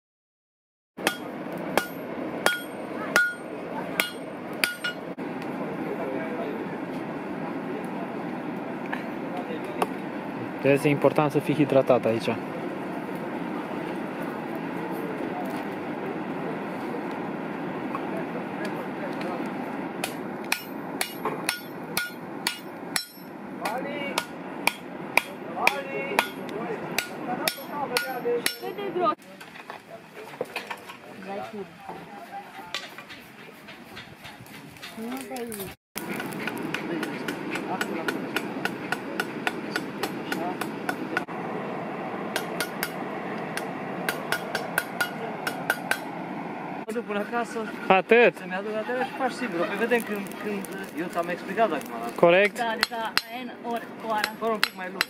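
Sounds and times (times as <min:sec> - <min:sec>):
hammer striking metal on anvil: 0:01.0 - 0:05.1, 0:20.0 - 0:28.7, 0:36.2 - 0:41.3, 0:42.3 - 0:43.0, 0:43.6 - 0:46.1
steady low rush: 0:01.0 - 0:29.1, 0:36.0 - 0:48.6.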